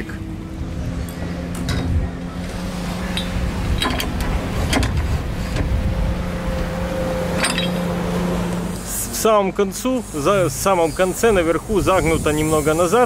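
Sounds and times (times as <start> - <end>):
motor humming: 0.0 - 9.4.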